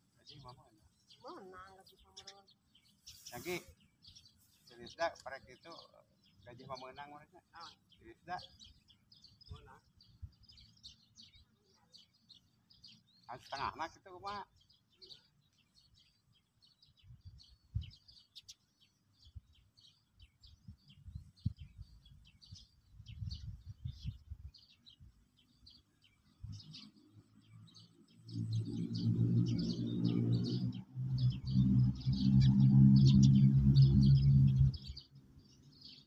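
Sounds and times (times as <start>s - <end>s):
small birds chirping: 0.0s - 36.0s
loud steady low drone: 28.2s - 35.1s.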